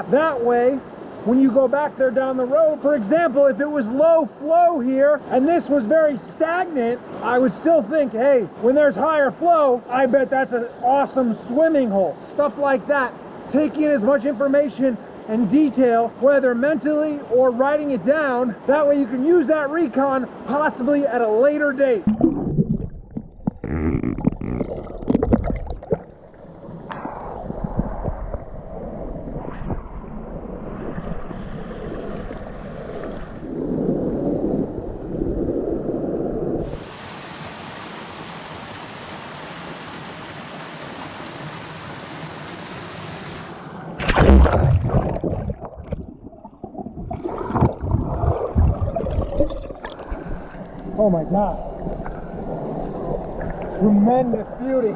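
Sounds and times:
water splashing in creek: 22.0s - 28.8s, 44.0s - 51.0s
rush of falling water: 36.6s - 45.0s.

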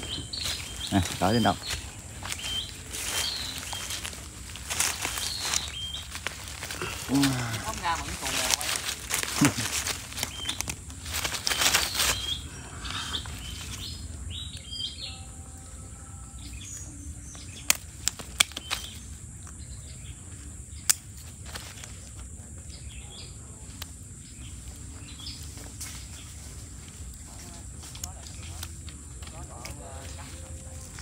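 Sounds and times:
faint bird chirps: 0.0s - 8.0s
steady low rumble: 0.0s - 18.2s
sharp clicks: 17.6s - 19.0s.

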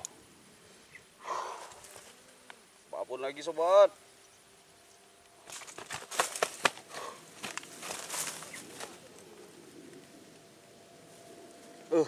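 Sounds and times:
rustling and crackling clicks: 5.2s - 10.5s.

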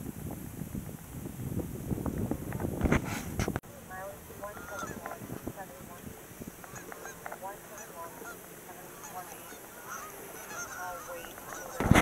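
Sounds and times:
geese honking: 3.7s - 12.0s.

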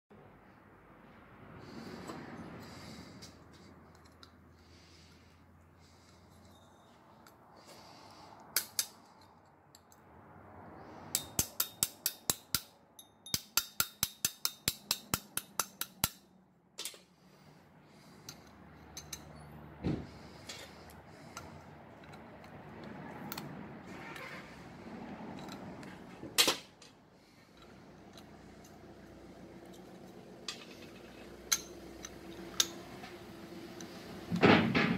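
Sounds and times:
metal parts clinking and knocking: 3.2s - 4.4s, 8.5s - 10.0s, 11.1s - 17.2s, 18.2s - 19.5s, 20.1s - 23.5s, 25.2s - 33.1s
quick metal clicks: 8.5s - 10.0s
sharp metal clack: 11.1s - 17.1s.

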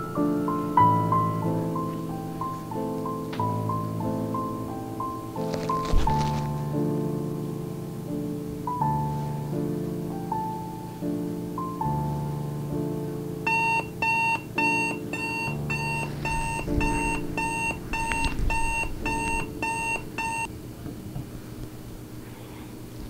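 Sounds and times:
soft piano music: 0.0s - 20.5s
digital alarm clock beeping: 13.5s - 20.5s.

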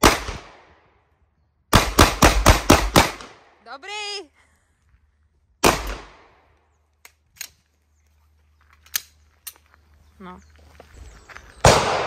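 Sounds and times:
pistol shot: 5.6s - 6.4s, 11.6s - 12.0s.

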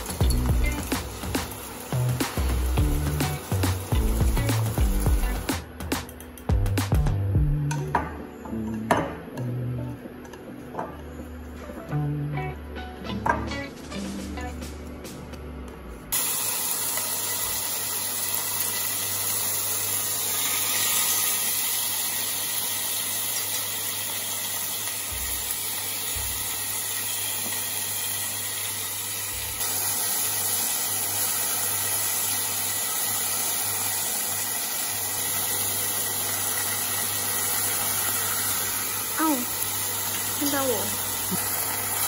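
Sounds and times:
chicken sizzling in oil: 0.0s - 5.6s, 16.1s - 42.0s
cooktop low hum: 0.0s - 42.0s.

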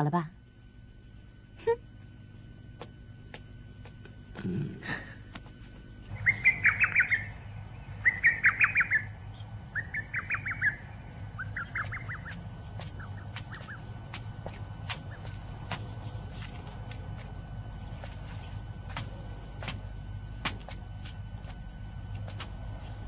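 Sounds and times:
steady low hum: 0.0s - 23.0s
bird trilling chirps: 6.1s - 13.9s.

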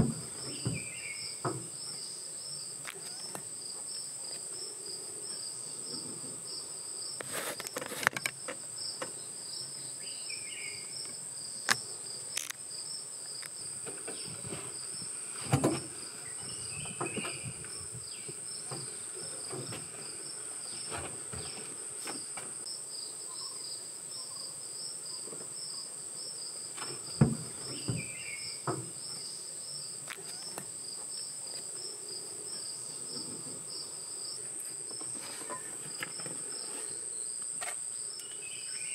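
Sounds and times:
sharp knocks: 0.0s - 1.7s, 26.8s - 29.0s
forest insects shrilling: 0.2s - 22.2s, 26.9s - 33.1s.

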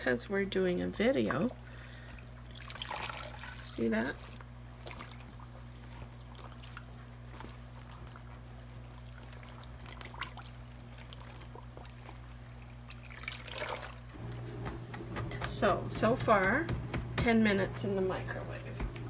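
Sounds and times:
water trickling from wet cloth: 1.0s - 14.2s
small water splashes: 1.2s - 14.1s.

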